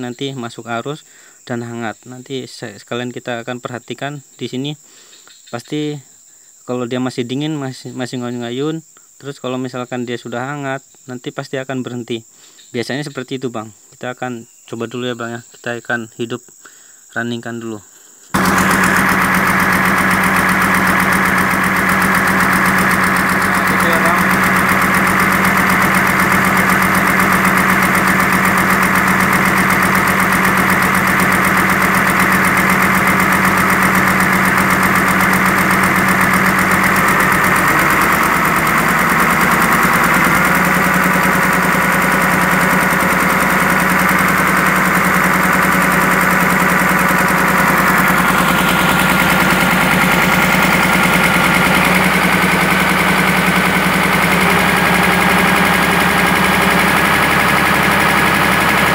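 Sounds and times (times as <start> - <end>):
excavator diesel engine running: 18.4 - 58.9.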